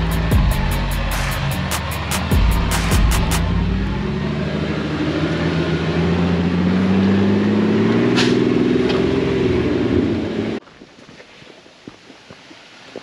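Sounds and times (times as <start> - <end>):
car engine pulling under load: 0.0 - 10.6.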